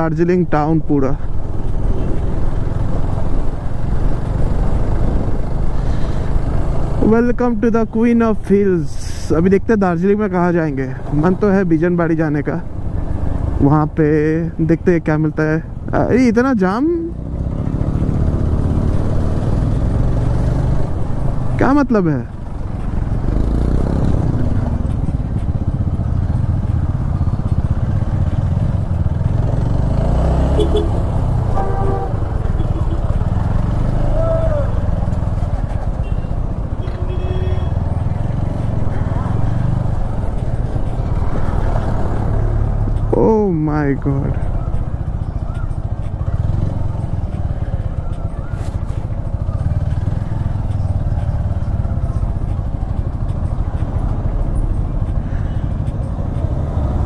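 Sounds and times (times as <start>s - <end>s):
motorcycle engine running: 16.9s - 57.0s.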